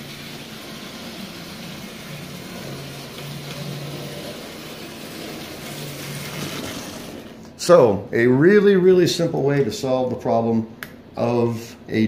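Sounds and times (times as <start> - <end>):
toy train motor humming: 0.0 - 7.2.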